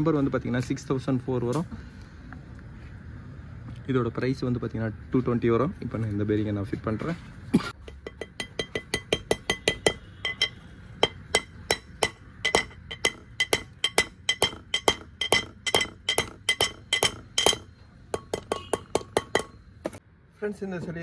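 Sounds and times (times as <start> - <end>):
hammer tapping on metal: 7.8 - 20.0.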